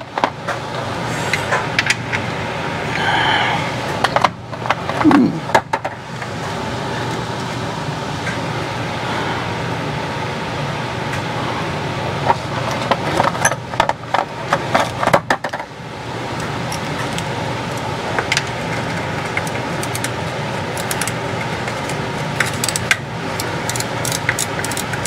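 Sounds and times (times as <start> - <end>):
background hum: 0.0 - 25.0.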